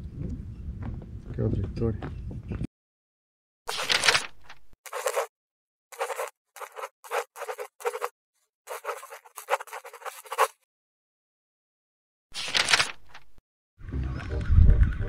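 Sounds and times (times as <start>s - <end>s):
scratchy writing sound: 3.7s - 5.3s, 5.9s - 8.1s, 8.7s - 10.6s.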